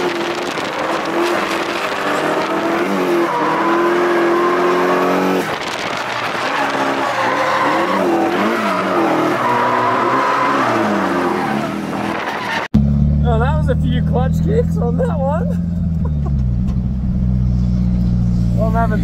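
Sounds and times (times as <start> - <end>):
car engine revving: 0.0 - 19.0
tyre squeal: 0.7 - 4.8, 5.9 - 12.7.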